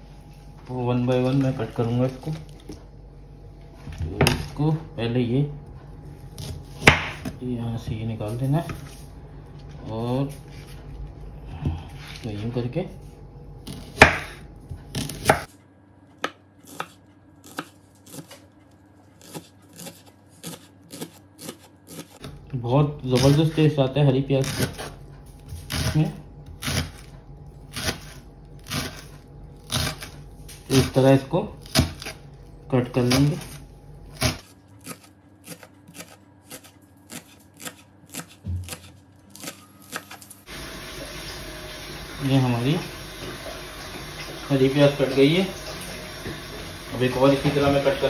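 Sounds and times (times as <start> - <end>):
knife chopping green onions: 6.3 - 7.4, 13.6 - 15.5, 16.2 - 18.6, 19.2 - 22.4, 23.1 - 23.5, 24.4 - 27.1, 27.7 - 31.0, 31.6 - 32.2, 33.0 - 40.4.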